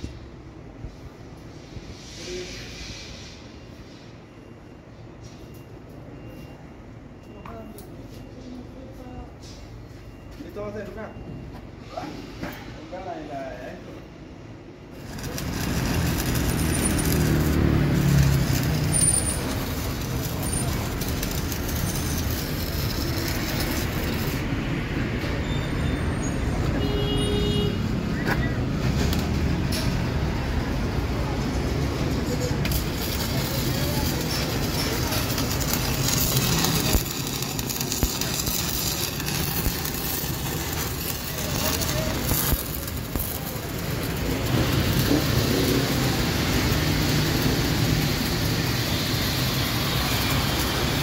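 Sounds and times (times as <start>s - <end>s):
welding arc crackling and hissing: 14.9s - 25.5s, 26.2s - 51.0s
vehicle passing with low rumble: 15.0s - 26.8s.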